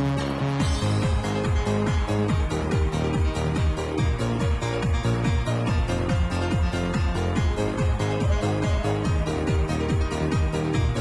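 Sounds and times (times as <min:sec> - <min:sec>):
techno dance music: 0:00.0 - 0:11.0.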